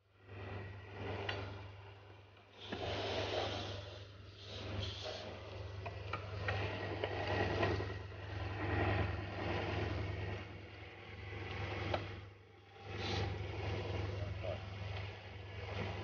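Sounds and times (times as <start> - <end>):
sand mixer humming: 0.1 - 16.0
sand pouring hiss: 2.8 - 5.3.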